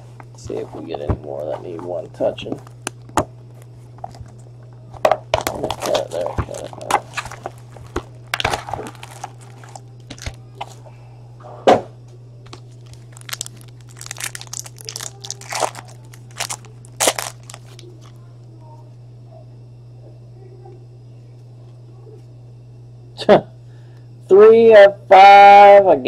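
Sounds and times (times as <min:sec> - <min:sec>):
steady low hum: 0:00.0 - 0:26.0
cardboard box rustling: 0:05.4 - 0:10.3
foil wrappers crinkling and tearing: 0:05.4 - 0:10.8, 0:12.5 - 0:18.1.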